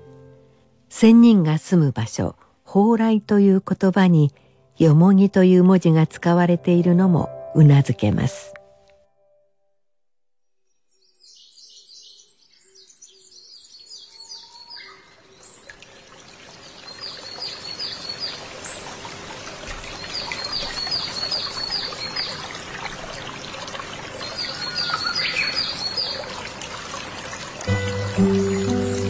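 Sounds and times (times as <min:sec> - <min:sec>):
birds chirping: 0:10.8 - 0:29.0
trickling water: 0:14.7 - 0:29.0.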